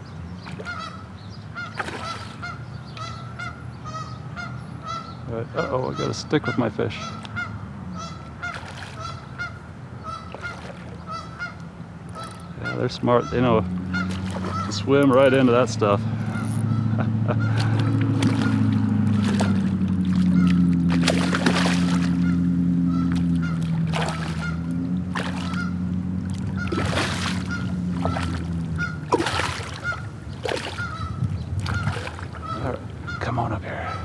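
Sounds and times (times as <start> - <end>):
fish splashing at water surface: 1.8 - 2.5, 8.4 - 9.1, 14.0 - 14.8, 17.5 - 22.4, 23.1 - 31.0, 31.6 - 32.5
steady low drone: 11.1 - 34.0.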